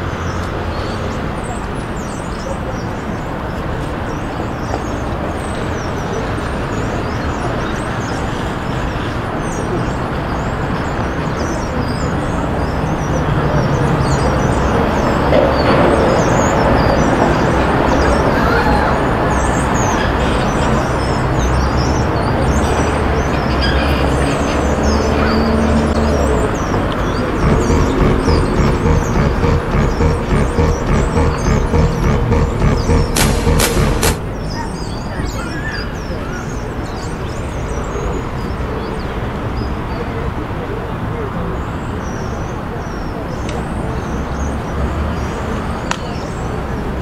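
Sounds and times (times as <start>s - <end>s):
passing cars rumbling: 13.2s - 34.6s.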